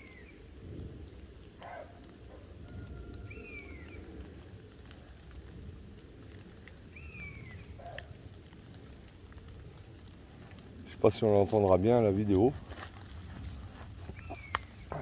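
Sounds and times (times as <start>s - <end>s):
animal calling: 14.0s - 15.0s.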